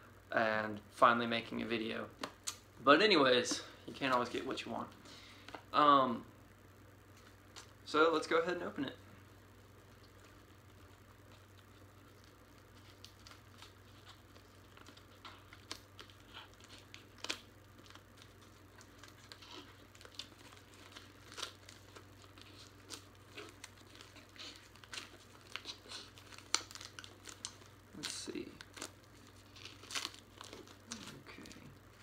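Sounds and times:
shrink-wrap crinkling: 9.6 - 32.0.

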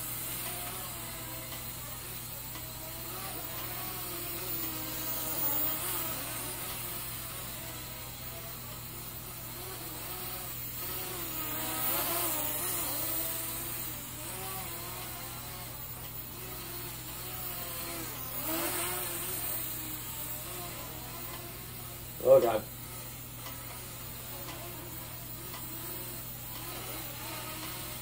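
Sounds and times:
toy drone motors whining: 0.0 - 28.0.

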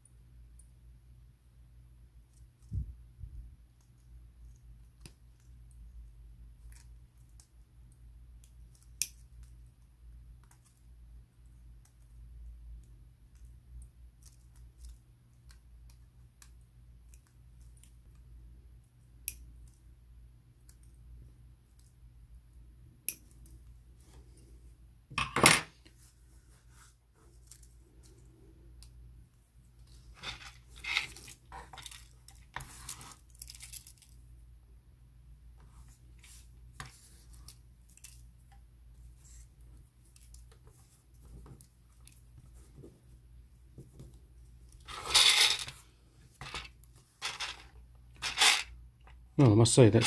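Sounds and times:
plastic pieces clattering: 44.9 - 45.8, 46.4 - 48.7.

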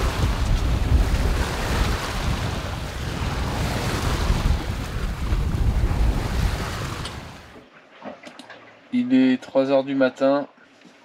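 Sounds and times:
wind buffeting microphone: 0.0 - 7.6
sea water washing along hull: 0.0 - 8.9.

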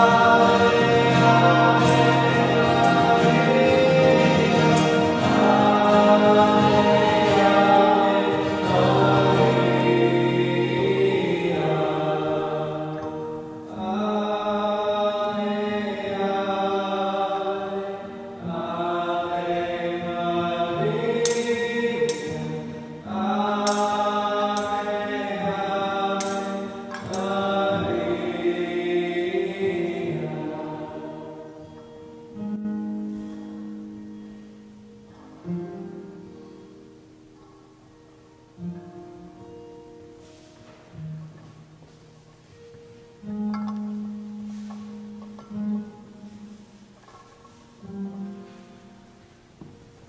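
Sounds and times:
instrumental accompaniment: 0.0 - 13.9, 38.0 - 50.0
voices singing a hymn: 0.0 - 33.9.

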